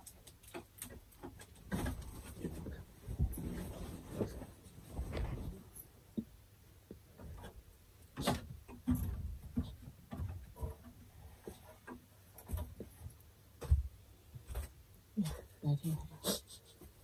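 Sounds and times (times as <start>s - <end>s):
light knocks and rustling: 7.1s - 14.8s.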